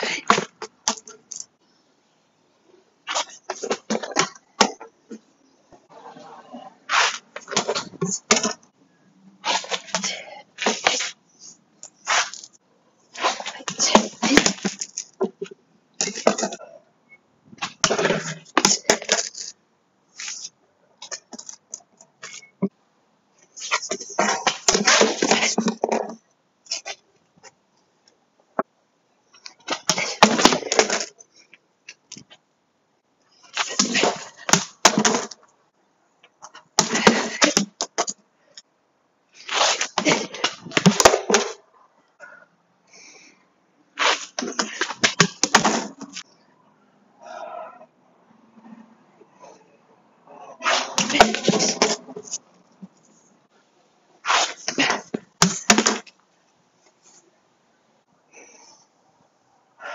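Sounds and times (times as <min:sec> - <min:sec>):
cane swishing through air: 0:06.1 - 0:08.6
cones scraping on concrete: 0:06.5 - 0:08.6, 0:09.4 - 0:11.2, 0:11.9 - 0:15.4, 0:39.4 - 0:41.6, 0:44.0 - 0:46.2, 0:50.5 - 0:52.4, 0:54.2 - 0:56.1.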